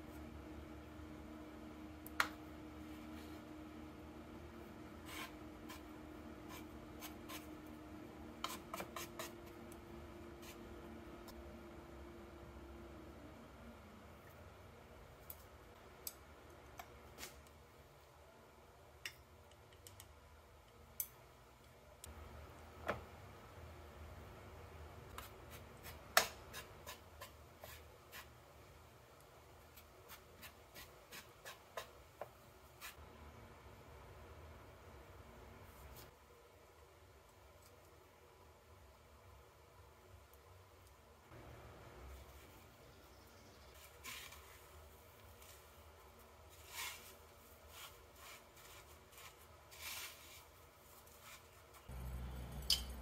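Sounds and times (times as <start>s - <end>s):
chopsticks scraping in flour: 5.0s - 7.6s, 8.4s - 9.5s, 46.5s - 51.9s.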